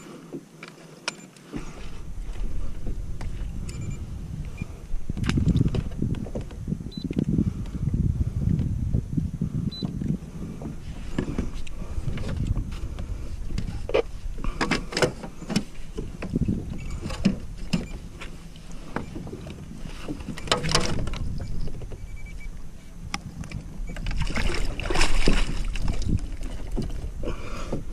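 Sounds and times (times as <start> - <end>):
low rumble: 1.8 - 14.6.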